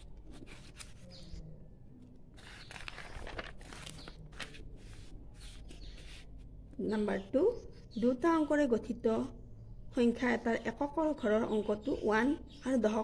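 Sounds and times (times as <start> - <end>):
paper pages rustling: 0.0 - 1.4, 2.3 - 6.5.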